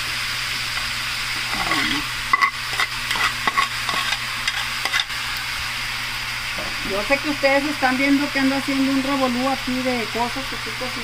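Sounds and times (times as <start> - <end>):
meat sizzling in a frying pan: 0.0 - 11.0
spoon scraping and tapping pan: 1.4 - 5.2.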